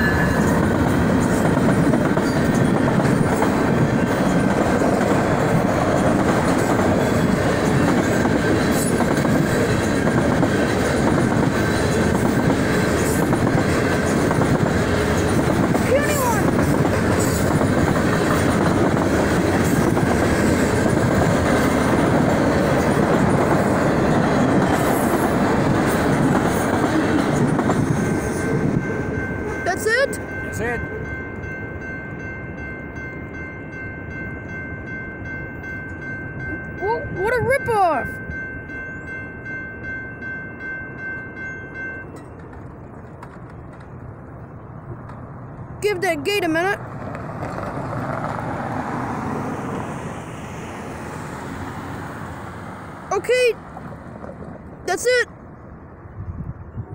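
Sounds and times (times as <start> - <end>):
wheels clacking over rail joints: 0.0 - 32.3, 40.7 - 55.2
freight train rumbling past: 0.0 - 56.9.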